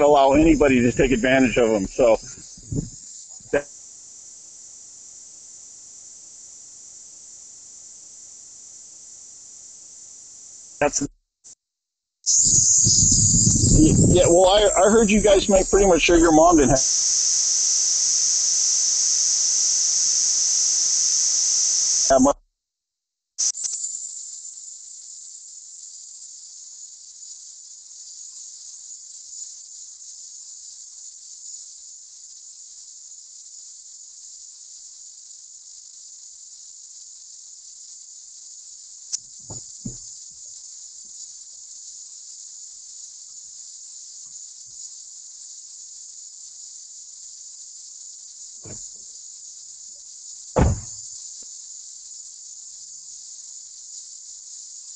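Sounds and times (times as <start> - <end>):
steady high-pitched hiss: 0.0 - 11.6, 12.2 - 22.4, 23.4 - 54.9
loud thump: 1.9 - 3.0, 39.5 - 40.0, 48.6 - 48.9, 50.6 - 51.0
brief dull knocks: 39.5 - 40.0, 48.6 - 48.9, 50.6 - 51.0.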